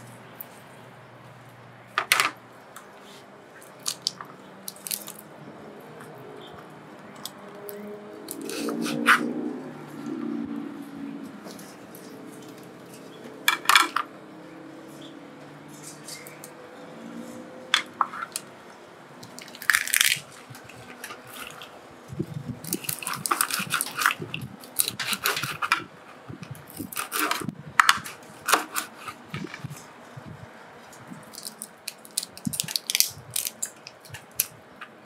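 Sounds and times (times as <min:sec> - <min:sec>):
prawn shell crackling and crunching: 0:03.0 - 0:05.4, 0:07.2 - 0:09.2, 0:19.2 - 0:30.2, 0:30.8 - 0:35.0.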